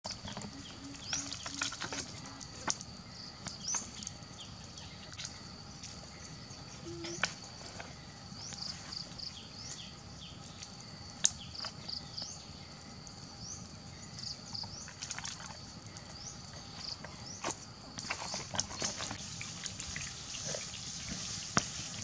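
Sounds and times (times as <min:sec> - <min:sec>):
high-pitched insect drone: 0:00.1 - 0:07.6
short insect chirps: 0:00.1 - 0:22.0.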